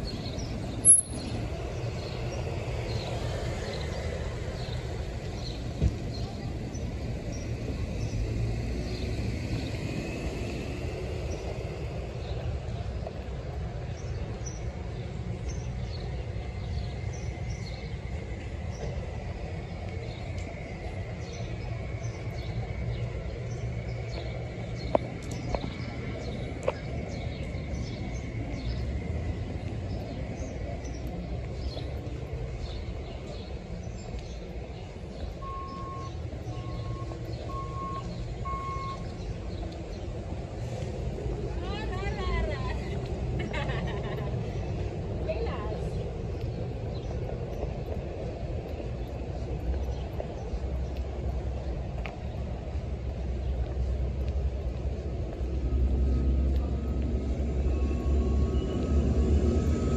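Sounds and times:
birds chirping: 0:10.5 - 0:59.9
bus engine idling: 0:34.6 - 0:45.8.

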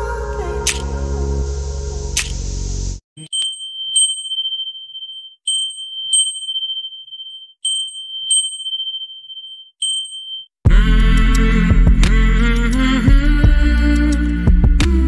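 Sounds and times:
electronic ding: 0:03.2 - 0:10.5.

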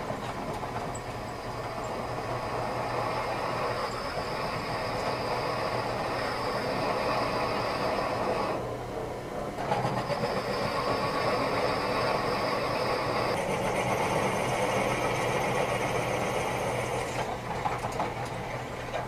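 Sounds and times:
drill press motor hum: 0:00.0 - 0:19.0
high-pitched whine: 0:00.8 - 0:17.2
drill cutting metal: 0:01.8 - 0:08.6, 0:09.9 - 0:17.3.

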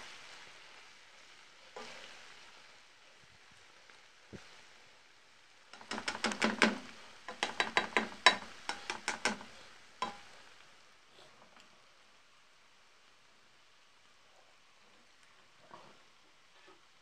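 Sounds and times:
faint sizzle: 0:00.0 - 0:17.0
plastic spoon knocking and scraping pot: 0:05.8 - 0:10.2.

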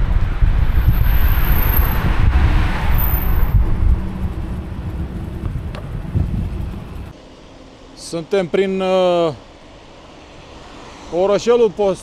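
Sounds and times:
wind buffeting microphone: 0:00.0 - 0:07.1
cars passing: 0:00.0 - 0:12.0.

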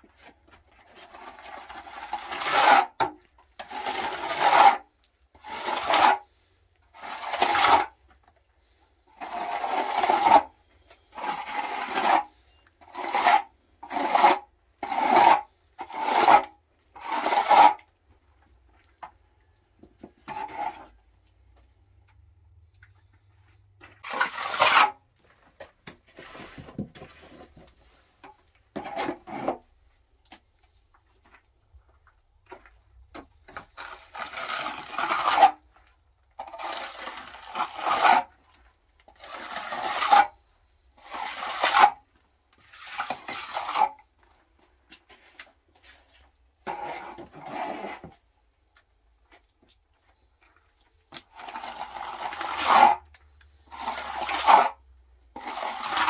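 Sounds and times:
trowel scraping wet plaster: 0:00.2 - 0:18.0, 0:20.0 - 0:21.1, 0:23.9 - 0:25.0, 0:26.2 - 0:29.8, 0:33.2 - 0:44.1, 0:45.0 - 0:48.2, 0:50.9 - 0:56.0.

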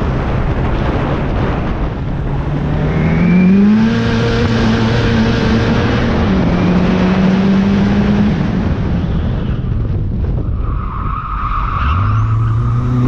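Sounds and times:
car engine revving: 0:00.8 - 0:09.0, 0:11.5 - 0:13.0.

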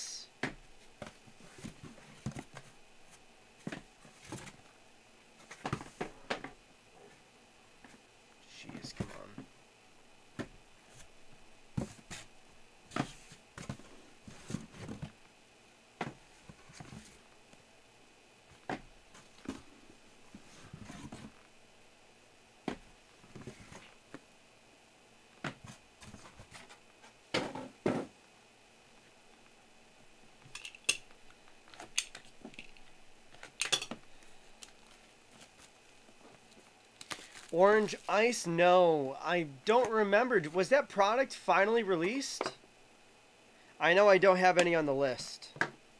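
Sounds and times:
cardboard boxes clicking and knocking: 0:00.4 - 0:02.7, 0:03.6 - 0:04.6
boxes knocking and scraping: 0:03.6 - 0:04.6, 0:11.8 - 0:12.3.

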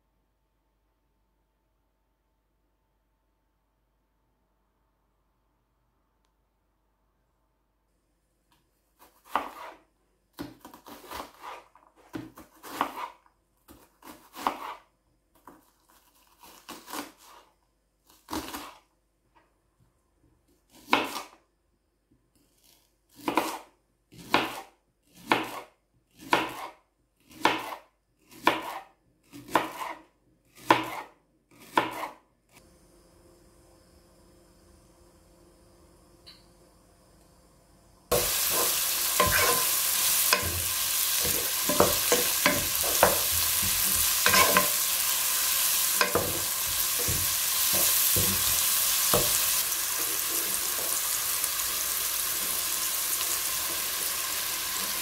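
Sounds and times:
knife chopping on plastic board: 0:09.0 - 0:09.8, 0:23.2 - 0:32.2, 0:40.3 - 0:44.8, 0:46.0 - 0:49.6.

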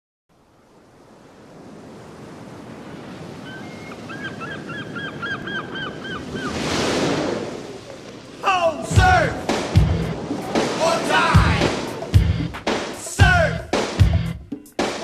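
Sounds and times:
ocean waves breaking: 0:00.3 - 0:15.0
bird calling: 0:03.4 - 0:06.8.

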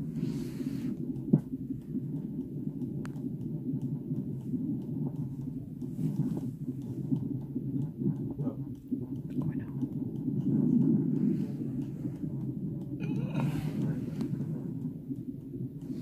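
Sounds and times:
fetal heartbeat on doppler: 0:00.0 - 0:16.0.

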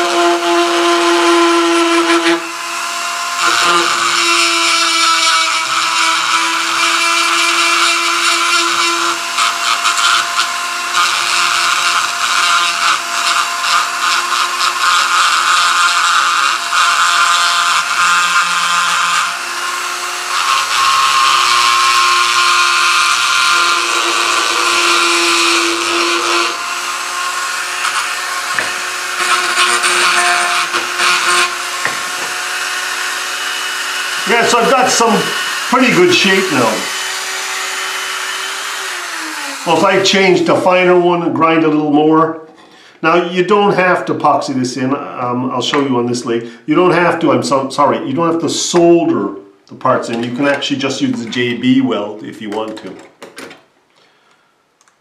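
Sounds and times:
rotary tool whine: 0:00.0 - 0:40.7
bit grinding metal: 0:00.0 - 0:41.0, 0:49.7 - 0:51.7.

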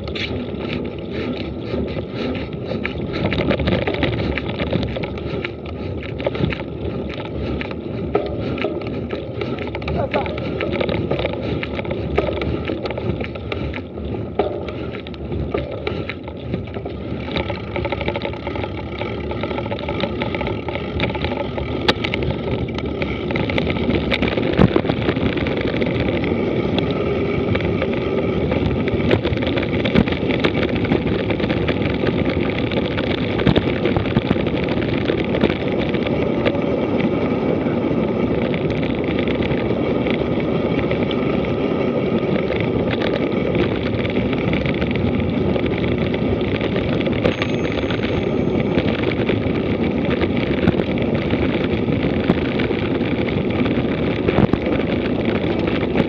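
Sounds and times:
bike rattling over bumps: 0:00.0 - 0:56.0
bike tyres on loose dirt: 0:00.0 - 0:56.0.

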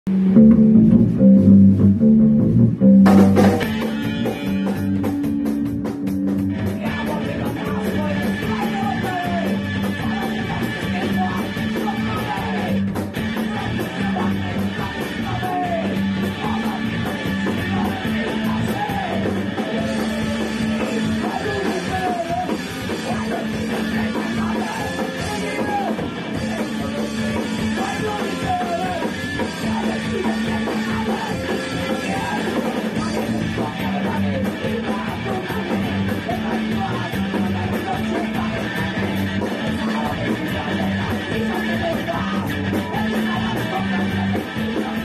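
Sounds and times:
punk rock band playing: 0:00.1 - 0:45.0.

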